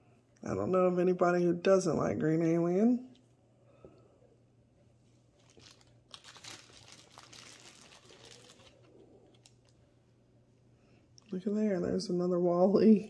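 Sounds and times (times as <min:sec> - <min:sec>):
plastic bag crinkling: 0:05.3 - 0:09.8.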